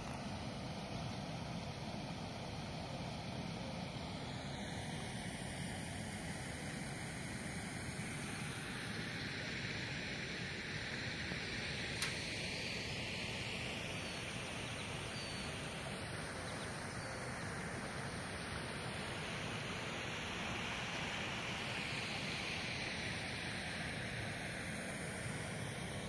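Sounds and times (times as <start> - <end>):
outdoor hiss and rumble: 0.0 - 26.0
sharp click: 12.0 - 12.3
faint high bird chirps: 14.0 - 17.6.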